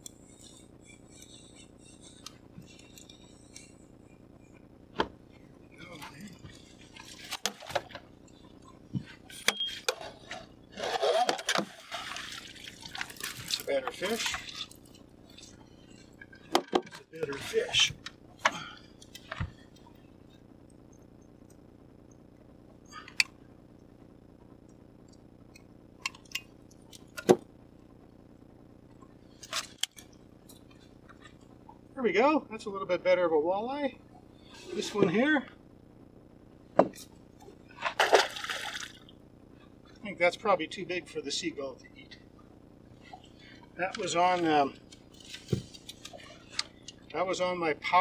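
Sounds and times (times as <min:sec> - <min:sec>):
faint steady hum: 0:00.0 - 0:48.0
clicks and knocks of handling fish: 0:06.4 - 0:08.1, 0:44.8 - 0:47.0.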